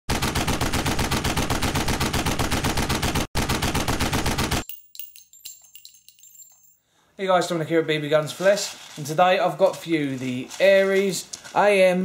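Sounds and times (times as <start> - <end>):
rapid automatic gunfire: 0.1 - 4.6
faint clinks: 4.6 - 7.0.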